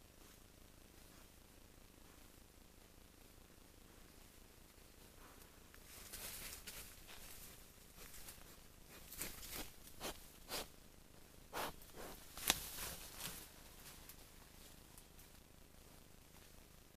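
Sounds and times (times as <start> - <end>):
animal rustling through undergrowth: 4.8 - 10.7, 11.5 - 15.5.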